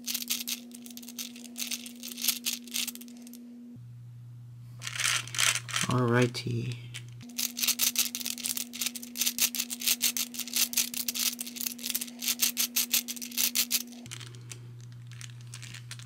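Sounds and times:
plastic puzzle balls clicking: 0.0s - 3.1s, 7.4s - 16.0s.

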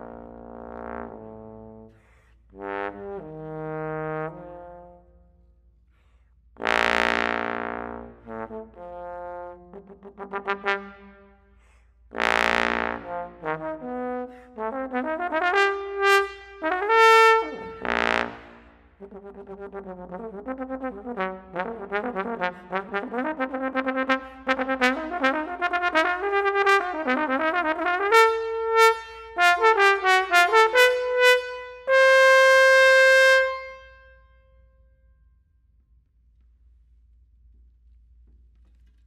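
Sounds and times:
trombone playing: 0.0s - 1.9s, 2.5s - 5.3s, 6.6s - 11.4s, 12.1s - 34.1s.

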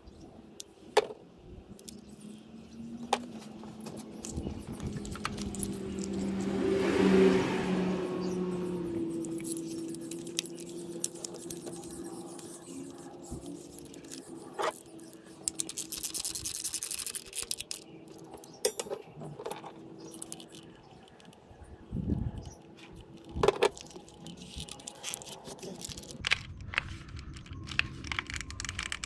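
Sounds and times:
plastic connectors clicking and rattling: 3.0s - 6.4s, 9.1s - 29.0s.

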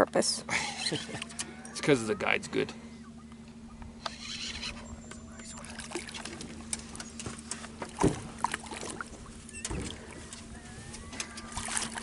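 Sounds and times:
steady low hum: 0.0s - 12.0s
fish splashing at surface: 5.5s - 6.6s, 11.4s - 12.0s.

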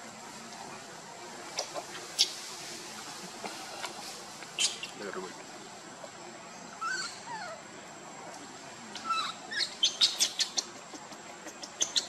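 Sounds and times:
bird chirping: 4.4s - 5.2s, 6.5s - 7.6s, 8.9s - 12.0s.

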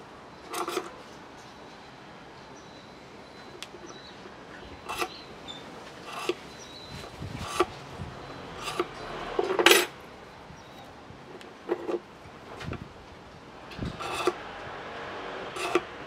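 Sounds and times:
knife scraping bamboo: 0.5s - 1.0s, 4.8s - 10.0s, 10.8s - 12.7s, 13.9s - 14.4s, 15.5s - 16.0s.

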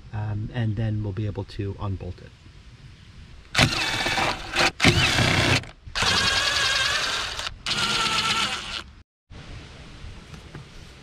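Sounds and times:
cordless driver motor whine: 3.6s - 8.8s.

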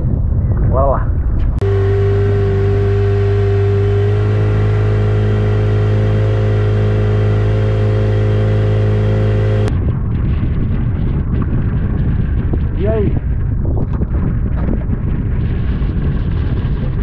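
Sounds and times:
rough rushing noise: 1.5s - 17.0s
outboard motor running: 1.6s - 9.7s.

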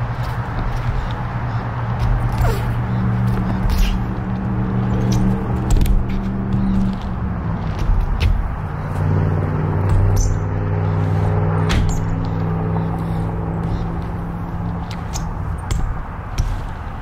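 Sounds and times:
bike knocks and clicks: 0.0s - 4.2s, 4.8s - 10.6s, 11.6s - 13.0s, 14.8s - 17.0s.

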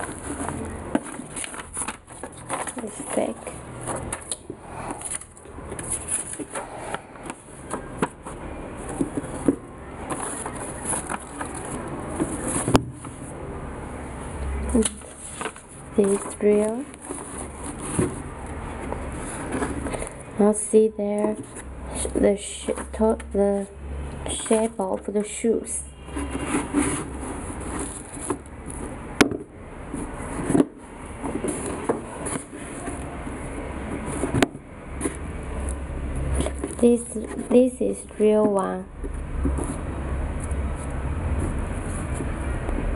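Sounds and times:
rustling of cardboard boxes: 0.0s - 13.5s, 14.6s - 42.9s
sneakers rustling in cardboard box: 25.9s - 29.0s.

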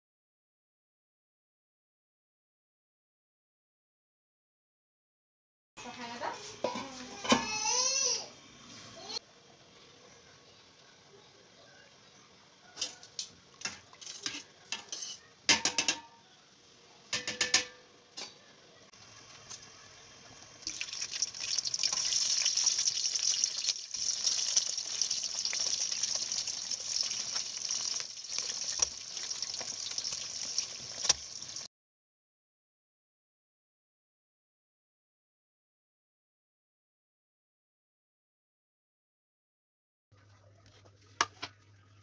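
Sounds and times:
metal pot and utensil clinks: 13.7s - 16.1s
food sizzling in hot oil: 19.0s - 31.7s.

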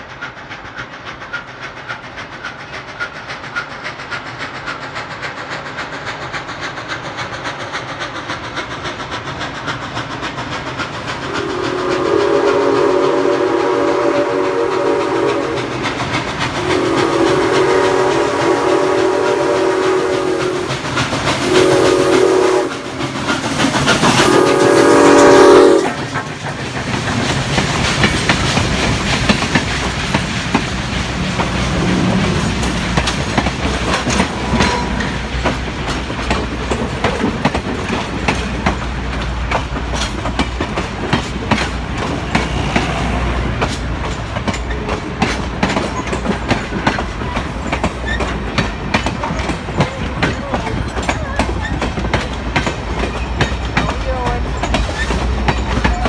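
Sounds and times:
low train rumble: 0.0s - 56.0s
train wheels clicking on rails: 0.0s - 56.0s
steam locomotive chime whistle: 11.3s - 15.8s, 16.6s - 20.8s, 21.4s - 22.8s, 24.2s - 26.0s, 34.4s - 35.3s.

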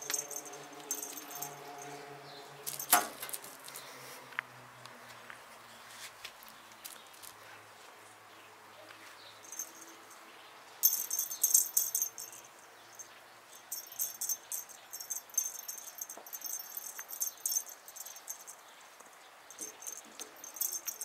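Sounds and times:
cat toy jingling: 0.0s - 3.7s, 9.4s - 18.8s, 19.5s - 21.0s.

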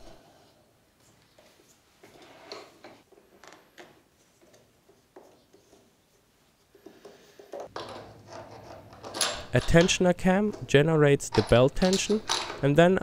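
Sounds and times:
metal parts clicking and tapping: 7.4s - 13.0s.

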